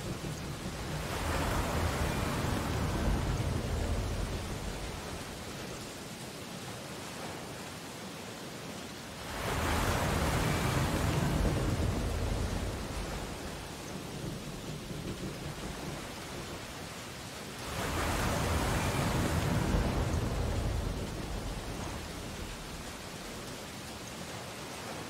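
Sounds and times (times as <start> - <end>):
sea waves breaking on shore: 0.0 - 25.0.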